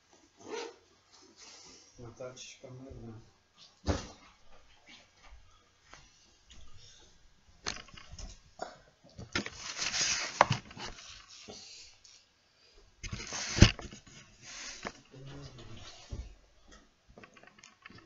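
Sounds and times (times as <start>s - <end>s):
rustling: 9.3s - 11.6s, 13.0s - 16.4s
microphone handling clicks and knocks: 13.0s - 15.0s.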